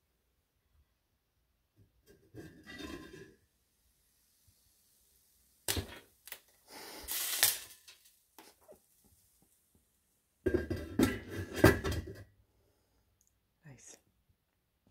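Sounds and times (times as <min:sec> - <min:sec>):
lid clattering onto pan: 0:02.2 - 0:03.3, 0:10.5 - 0:12.2
metal pan lid knocking: 0:10.5 - 0:12.0.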